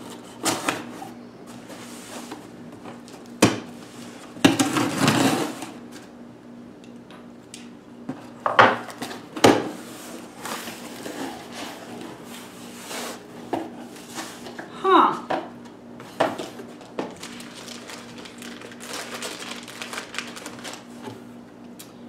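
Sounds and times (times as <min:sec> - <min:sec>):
scrape: 0:01.7 - 0:02.3, 0:09.8 - 0:13.2, 0:13.9 - 0:14.5.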